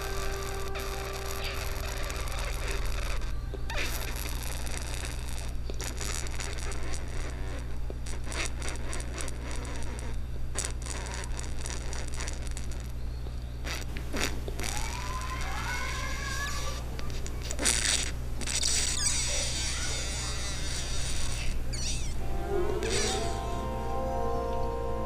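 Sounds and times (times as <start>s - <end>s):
crackling and scratching: 0.0s - 13.0s, 16.7s - 23.7s
steady low hum: 0.0s - 25.0s
rising whistling tones: 21.8s - 25.0s.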